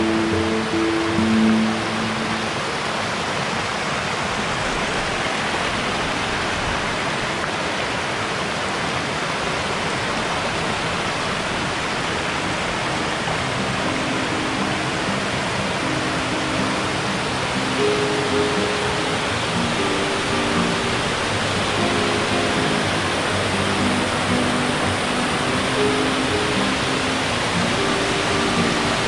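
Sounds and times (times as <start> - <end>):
faint music: 0.0 - 3.6, 12.3 - 29.0
waterfall rushing: 0.0 - 29.0.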